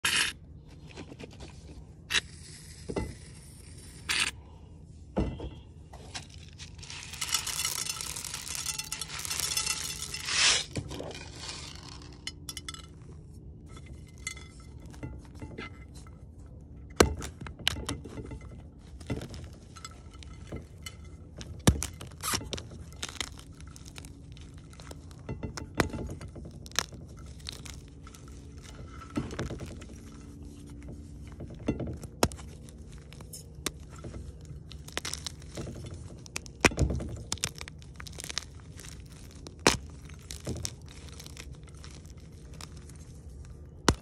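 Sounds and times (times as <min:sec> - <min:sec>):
chalk blocks crushed and crumbled: 0:06.1 - 0:13.0, 0:17.0 - 0:44.0.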